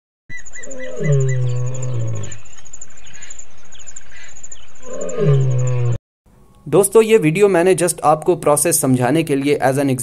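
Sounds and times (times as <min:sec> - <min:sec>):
high insect trill: 0:00.3 - 0:06.0
lion roaring: 0:00.8 - 0:02.4, 0:04.8 - 0:06.0.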